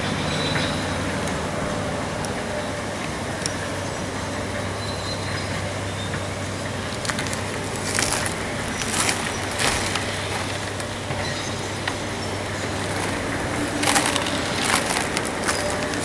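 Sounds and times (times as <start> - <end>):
demolition machinery humming: 0.0 - 16.0
concrete cracking and crunching: 6.9 - 10.9, 12.7 - 16.0.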